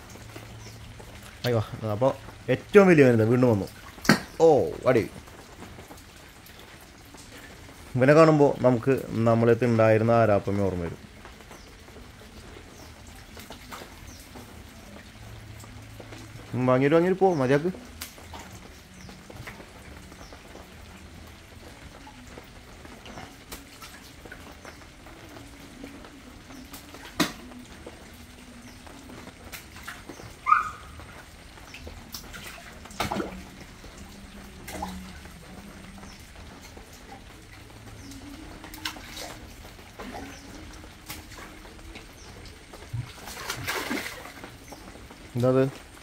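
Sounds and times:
fish splashing at water surface: 0:43.0 - 0:44.8.

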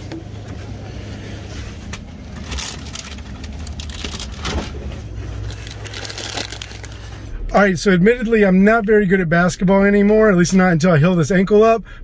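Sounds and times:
low shop hum: 0:00.0 - 0:12.0
bag of sweets rustling on metal peg: 0:02.3 - 0:07.3.

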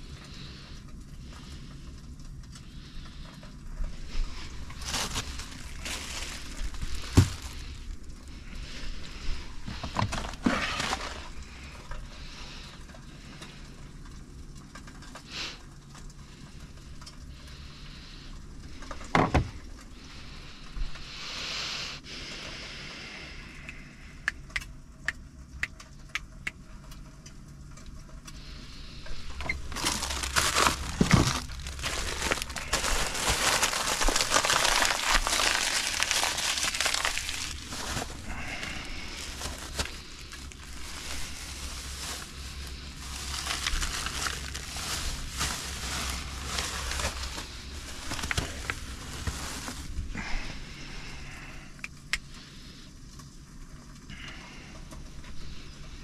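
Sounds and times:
food crinkling: 0:00.0 - 0:17.7, 0:26.1 - 0:52.4
low steady hum: 0:00.0 - 0:56.0
loud steady hiss: 0:20.0 - 0:24.1.

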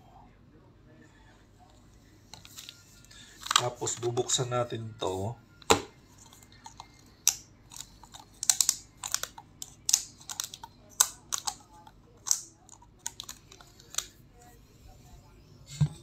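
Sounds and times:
plastic lid clicking and crackling: 0:05.6 - 0:14.1.

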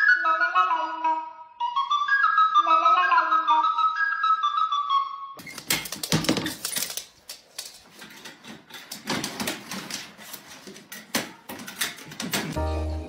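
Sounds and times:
sharp clicks and knocks: 0:05.4 - 0:12.6.

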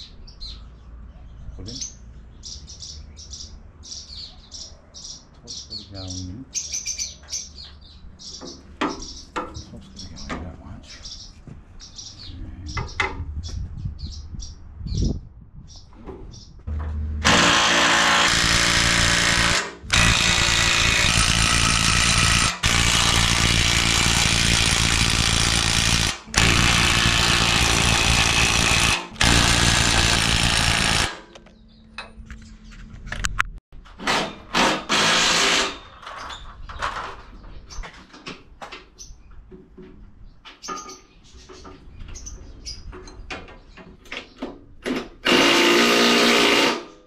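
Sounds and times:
clanks and knocks: 0:16.0 - 0:46.9
impact wrench hammering: 0:16.7 - 0:31.4, 0:34.0 - 0:35.8, 0:45.2 - 0:47.0.

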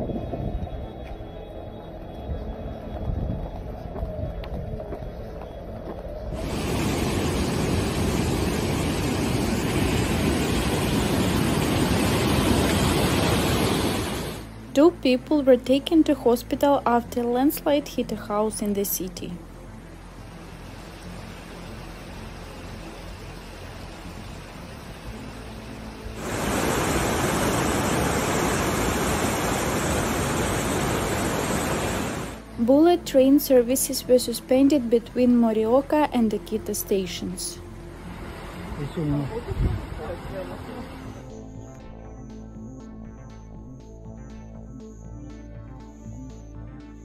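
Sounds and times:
steady hiss: 0:06.3 - 0:14.6, 0:19.9 - 0:32.5
river rushing over weir: 0:06.4 - 0:14.5, 0:26.1 - 0:32.5.

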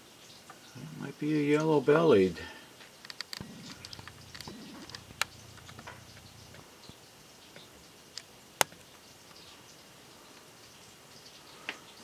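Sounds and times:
woodpecker pecking: 0:03.0 - 0:07.0.

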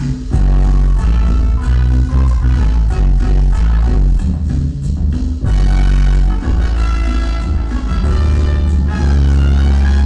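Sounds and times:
cumbia music over sound system: 0:00.0 - 0:10.0.

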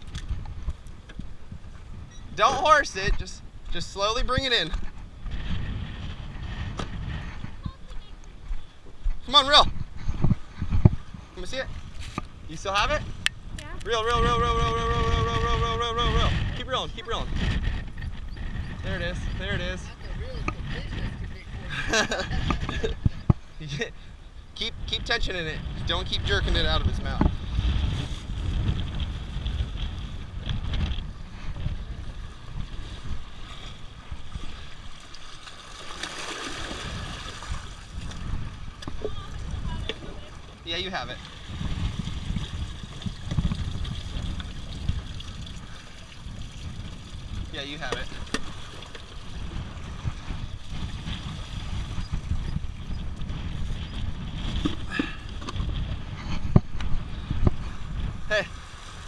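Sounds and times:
wind buffeting microphone: 0:00.0 - 0:59.0
small waves washing against rocks: 0:32.0 - 0:52.0, 0:58.5 - 0:59.0
bucket splashing into water: 0:35.3 - 0:37.9.

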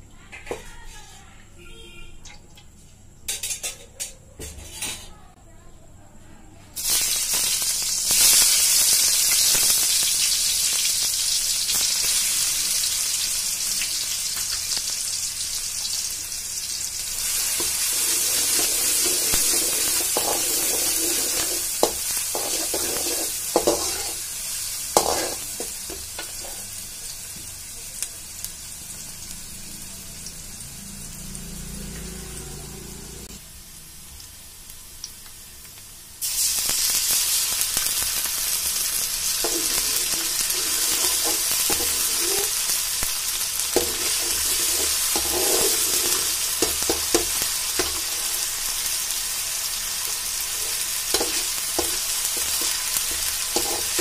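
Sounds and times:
onions sizzling in oil: 0:06.8 - 0:54.0
spatula scraping a pan: 0:17.4 - 0:24.3, 0:24.9 - 0:26.7, 0:39.4 - 0:42.6, 0:43.8 - 0:48.1, 0:50.6 - 0:54.0.

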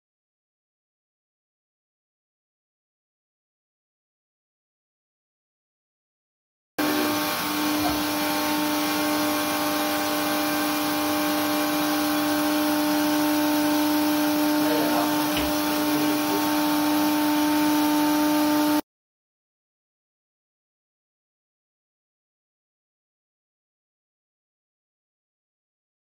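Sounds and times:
loud machine hum: 0:06.8 - 0:18.8.

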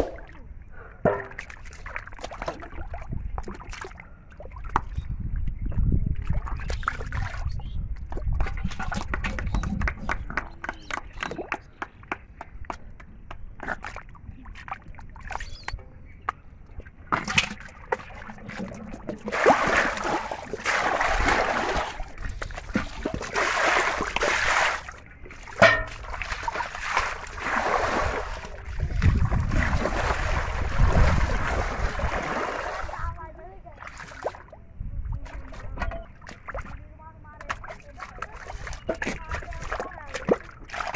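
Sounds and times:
muddy water splashing: 0:00.0 - 0:12.7, 0:13.4 - 0:40.9
mud squelching: 0:01.1 - 0:05.0, 0:13.4 - 0:34.5, 0:35.2 - 0:40.9.

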